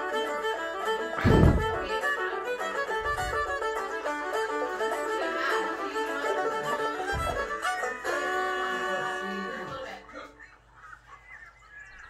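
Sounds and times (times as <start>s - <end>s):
fiddle music through laptop speaker: 0.0s - 10.5s.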